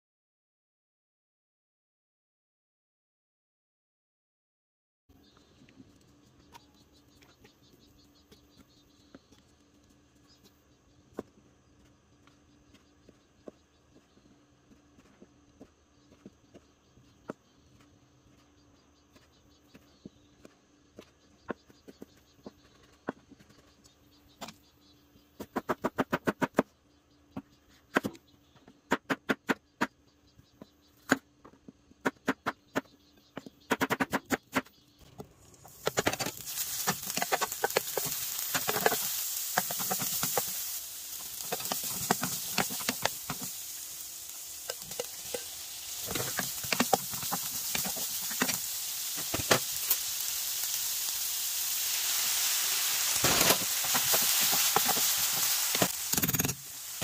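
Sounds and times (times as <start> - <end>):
vegetables sizzling in frying pan: 35.4 - 57.0.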